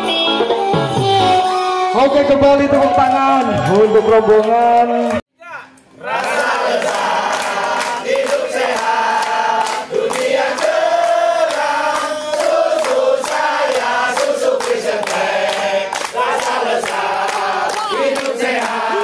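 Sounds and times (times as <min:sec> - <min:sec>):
group chanting in unison: 0:06.0 - 0:19.0
rhythmic hand clapping: 0:06.0 - 0:19.0.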